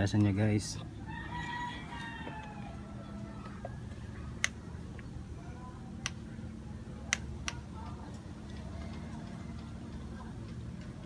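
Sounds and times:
low background hum: 0.0 - 11.0
distant rooster crowing: 1.0 - 4.3
sharp clicks: 4.4 - 5.1, 7.1 - 7.6.

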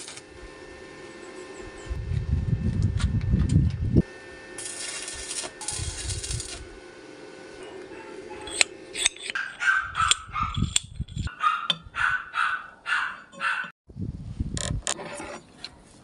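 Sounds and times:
welding arc crackling and hissing: 0.0 - 0.4, 4.0 - 6.9
dog barking: 7.6 - 8.6, 9.4 - 10.6, 11.3 - 13.7.

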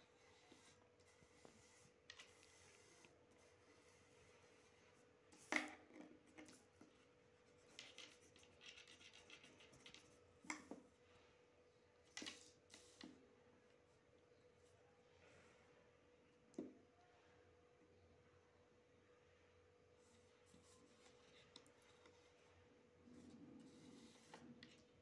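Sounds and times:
faint steady hum: 0.0 - 25.0
pencil compass scratching paper: 0.1 - 5.5, 7.4 - 10.2, 23.2 - 24.8.

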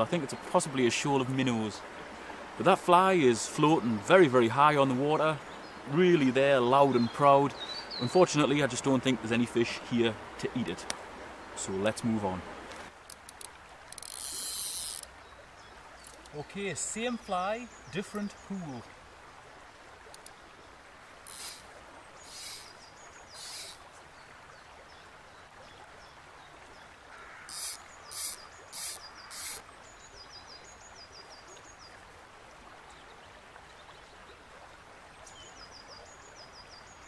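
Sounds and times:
river flowing: 0.0 - 37.0
fly line swishing through air: 21.3 - 21.7, 22.3 - 22.7, 23.4 - 23.8
small bird chirping: 21.3 - 23.8, 27.5 - 29.6.

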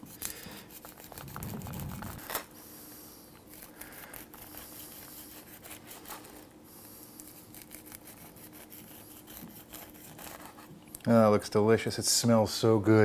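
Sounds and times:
knife rasping corn kernels: 0.0 - 2.5, 3.1 - 10.7.

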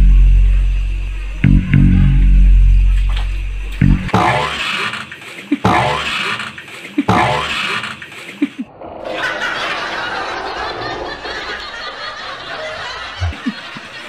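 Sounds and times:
people laughing and snickering: 8.2 - 14.0.

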